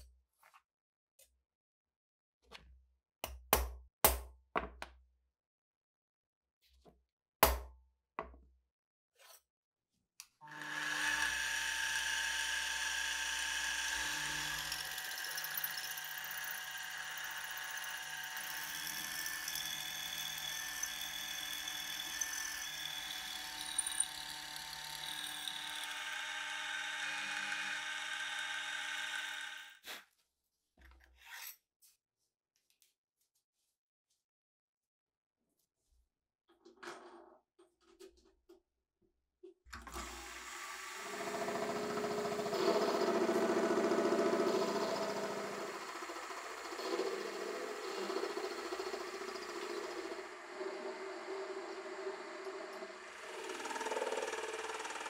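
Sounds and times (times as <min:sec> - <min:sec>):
drilling machine boring metal: 0:10.4 - 0:29.8, 0:39.9 - 0:55.0.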